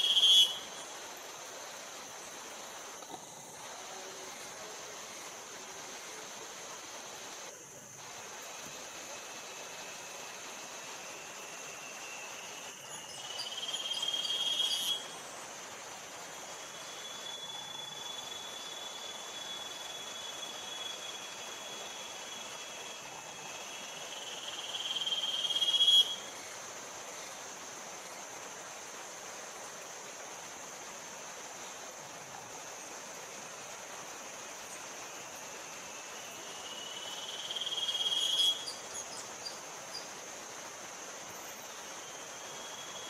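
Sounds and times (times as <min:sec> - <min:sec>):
high-pitched insect hum: 0:00.0 - 0:43.0
loud insect call: 0:00.0 - 0:43.0.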